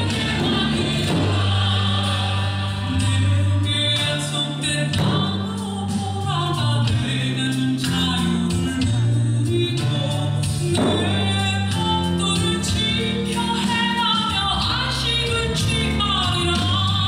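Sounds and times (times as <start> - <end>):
sharp drum strikes: 0.0 - 1.8, 5.0 - 5.5, 10.7 - 11.4
choir singing held notes: 0.0 - 5.6
low bass line: 0.0 - 17.0.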